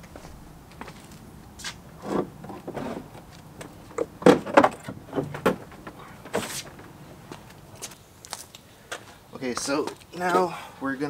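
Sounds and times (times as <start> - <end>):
plastic scrape: 2.0 - 3.2
plastic bumper knocking and rattling: 2.1 - 7.0.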